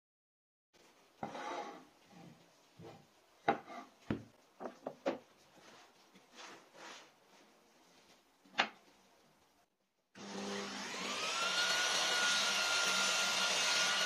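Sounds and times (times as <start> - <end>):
wood scraping on tabletop: 1.2 - 7.2.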